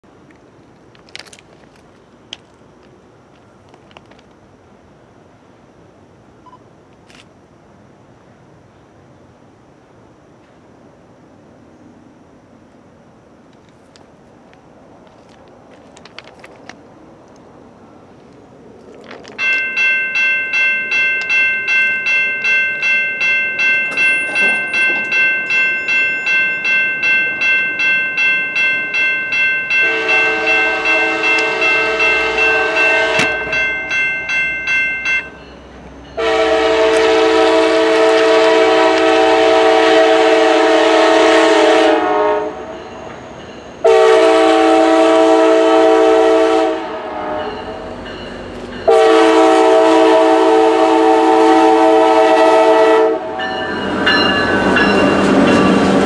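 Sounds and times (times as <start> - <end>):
crossing warning bell ringing: 19.2 - 40.2, 40.9 - 44.6, 47.3 - 56.0
locomotive air horn blasts: 29.7 - 33.6, 36.2 - 42.8, 43.8 - 47.7, 48.9 - 53.5.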